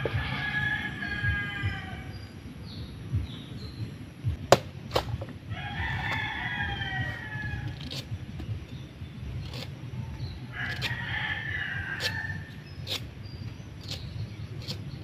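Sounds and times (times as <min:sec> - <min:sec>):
rooster crowing: 0:00.0 - 0:02.3, 0:05.5 - 0:08.3, 0:10.5 - 0:12.6
machete chopping into coconut: 0:04.4 - 0:05.4, 0:10.6 - 0:13.1.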